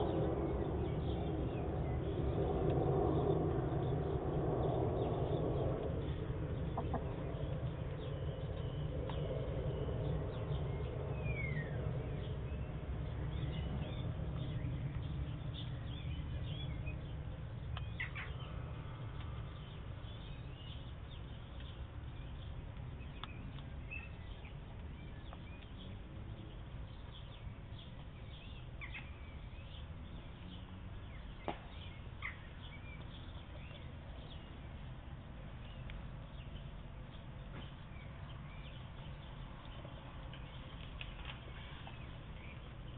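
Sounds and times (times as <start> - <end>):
low rumble: 0.0 - 30.5
hens clucking: 6.7 - 7.2.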